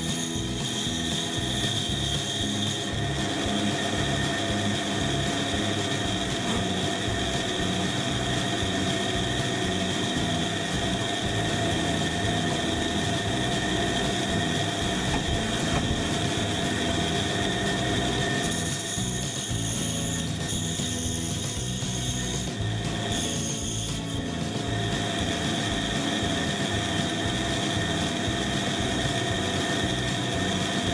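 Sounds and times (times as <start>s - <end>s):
band saw whining: 0.0s - 30.9s
saw blade cutting wood: 0.0s - 30.9s.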